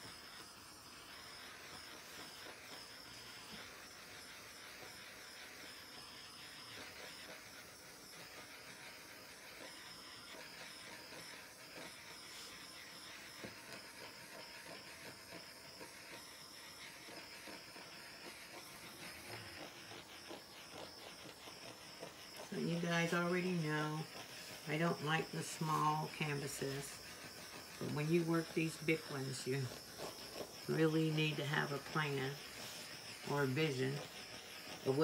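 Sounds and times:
handheld torch hissing: 0.0 - 35.0.

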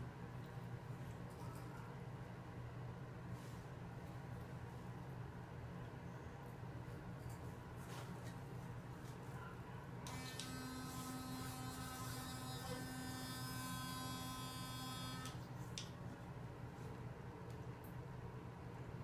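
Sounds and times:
electric toothbrush buzzing: 10.1 - 15.4.

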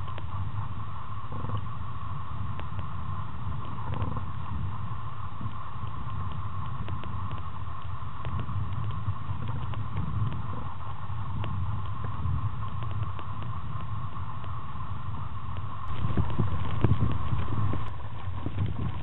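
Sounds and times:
faint clicks: 0.0 - 0.4, 5.4 - 19.0
mid-pitched hum: 0.0 - 19.0
underwater rumbling water: 0.0 - 19.0.

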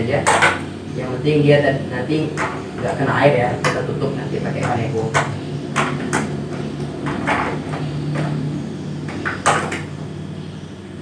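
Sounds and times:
steady low hum: 0.0 - 11.0
hands knocking plastic casing: 4.6 - 8.3.

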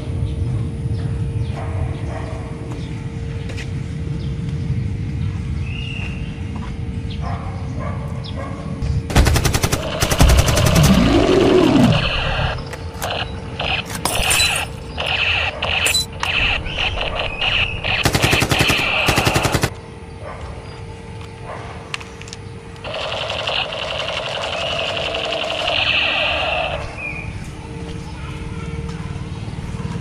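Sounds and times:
automatic gunfire: 9.1 - 11.2, 17.9 - 19.7
creature roaring: 9.9 - 12.6.

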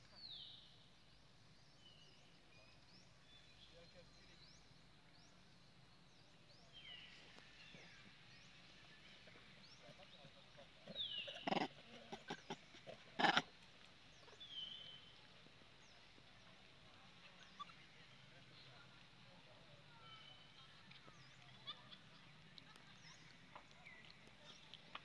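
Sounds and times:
harsh sharp monkey calls: 11.3 - 13.4
infant monkey squealing: 13.2 - 13.4.

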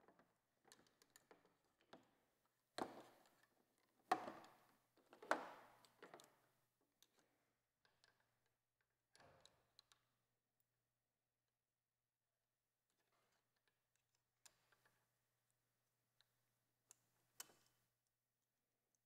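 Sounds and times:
hands clicking and tapping controls: 0.0 - 8.4.

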